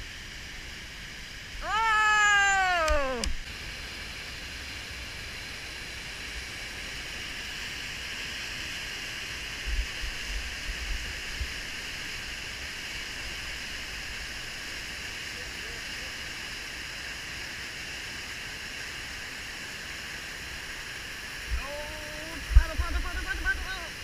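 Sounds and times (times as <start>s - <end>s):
whitewater rushing: 16.4s - 24.0s.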